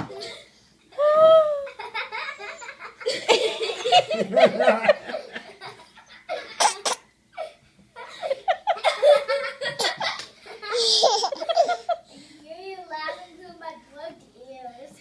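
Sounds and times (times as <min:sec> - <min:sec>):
baby laughing: 0:05.6 - 0:12.0.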